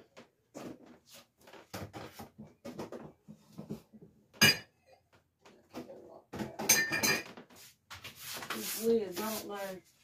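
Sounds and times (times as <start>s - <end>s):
dishes knocking and scraping: 1.6s - 8.1s
loud ringing dish clink: 4.4s - 4.7s.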